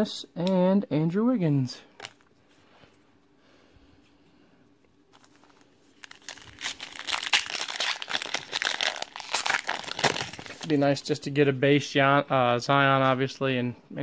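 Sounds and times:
foil wrapper tearing and crinkling: 5.2s - 10.7s.

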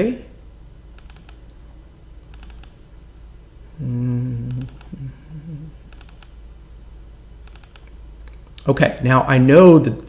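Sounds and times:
computer mouse double-clicks: 1.0s - 1.4s, 2.3s - 2.8s, 5.9s - 6.4s, 7.4s - 8.0s
person humming: 3.7s - 5.9s.

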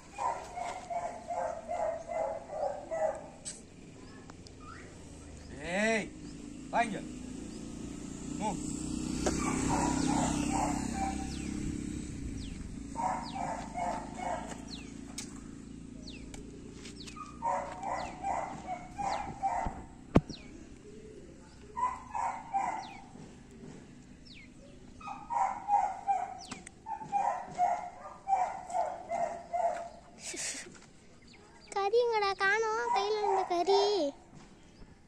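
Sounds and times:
dogs yapping: 0.0s - 3.6s, 8.8s - 20.5s, 21.7s - 23.4s, 24.8s - 30.2s, 32.7s - 34.1s
small birds chirping: 0.0s - 35.0s.

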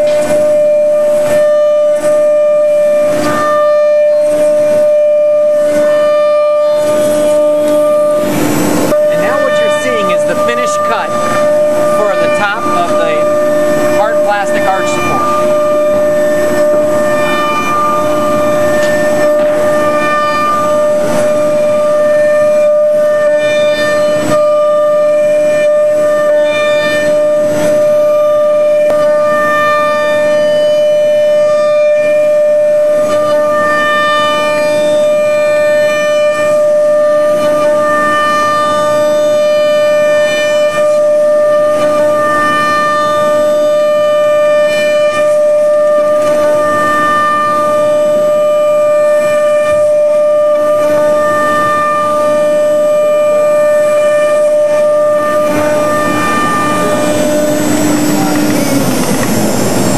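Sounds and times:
cutter tones milling material: 0.0s - 59.9s
router spindle whining: 0.0s - 59.9s.

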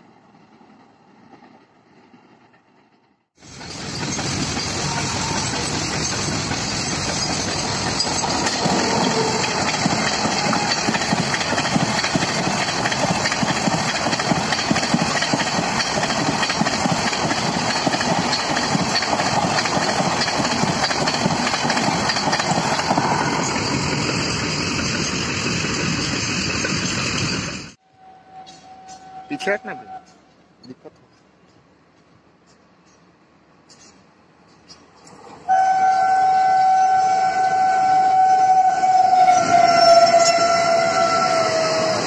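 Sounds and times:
train rushing past: 0.0s - 30.1s, 34.9s - 42.0s
wheels clattering over rail joints: 3.4s - 27.8s.

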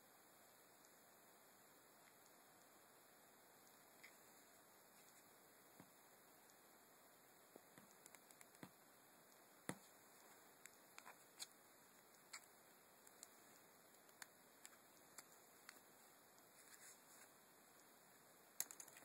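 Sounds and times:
fingertips tapping a touchscreen: 7.5s - 17.9s.

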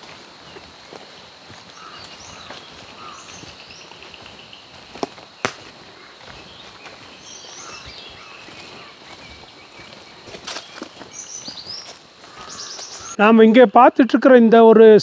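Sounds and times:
small birds chirping: 0.0s - 13.8s
rapid bird trill: 1.7s - 13.2s.

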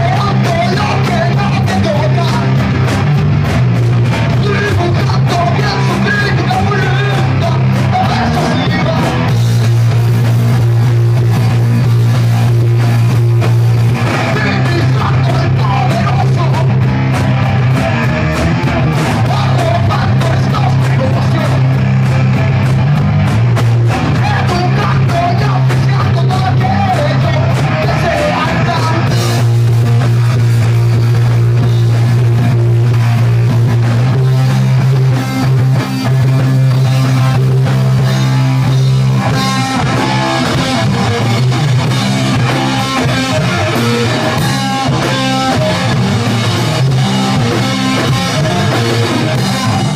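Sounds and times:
lead vocal singing: 0.0s - 2.5s, 4.3s - 9.3s, 14.1s - 16.8s, 19.2s - 21.7s, 24.1s - 29.4s
live rock band playing: 0.0s - 49.9s.

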